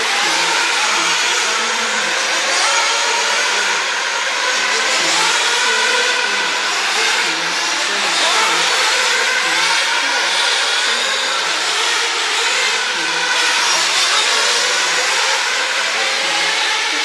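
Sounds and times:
rc car motors revving: 0.0s - 17.0s.

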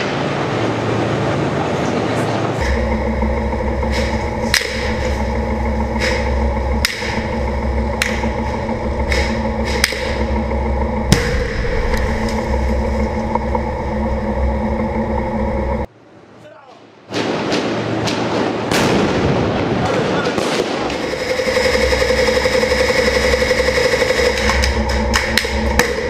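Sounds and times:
tank diesel engine droning: 0.0s - 15.9s, 20.9s - 26.0s
sharp knocks: 5.9s - 8.4s.

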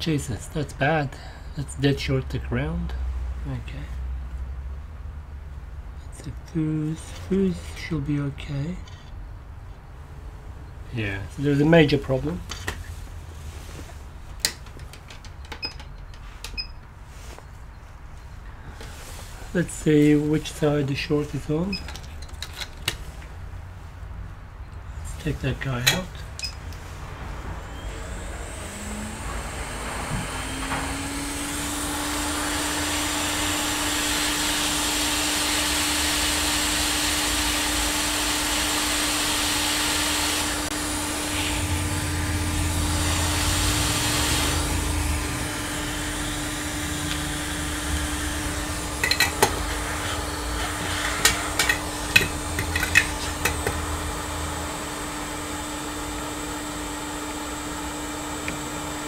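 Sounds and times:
steady hum: 23.5s - 59.0s
hot air blower rushing: 25.1s - 59.0s.

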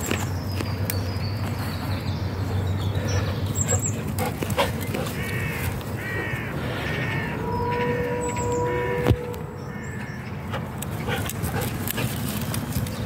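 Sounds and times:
crow cawing: 5.1s - 10.2s.

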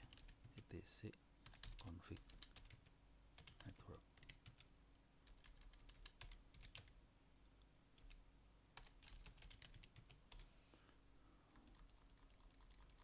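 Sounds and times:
faint keyboard typing: 0.0s - 0.8s, 1.4s - 7.0s, 7.9s - 8.2s, 8.8s - 13.0s.

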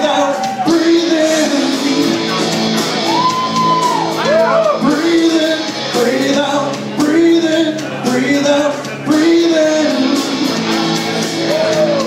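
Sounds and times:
man singing into a microphone: 0.0s - 3.1s, 4.3s - 12.0s
loud music: 0.0s - 12.0s.

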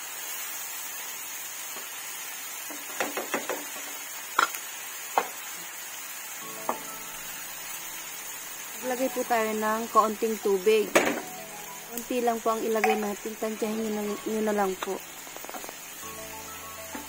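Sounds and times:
soft sizzle: 0.0s - 17.0s
plastic spoon knocking on a wok: 12.8s - 13.2s.

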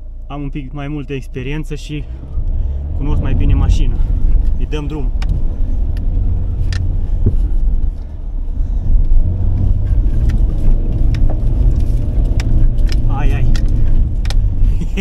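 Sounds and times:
diesel engine drone: 0.0s - 15.0s.

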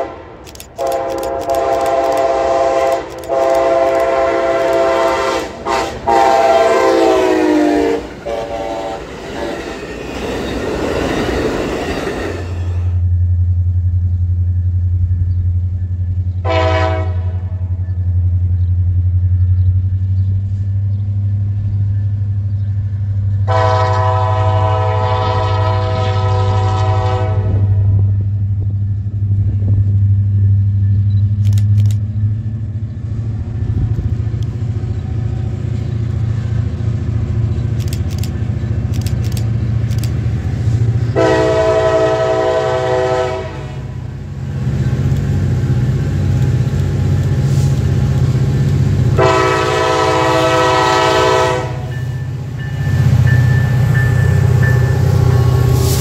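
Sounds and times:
train air horn blasts: 0.0s - 9.6s, 16.4s - 17.8s, 23.4s - 28.2s, 40.6s - 44.2s, 49.1s - 52.2s
low train rumble: 0.0s - 56.0s.

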